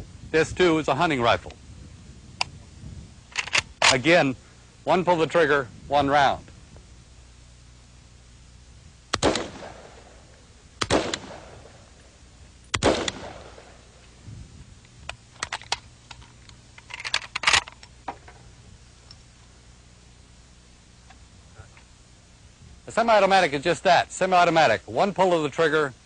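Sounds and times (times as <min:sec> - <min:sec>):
rifle shots: 0:09.1 - 0:12.0, 0:12.7 - 0:14.0.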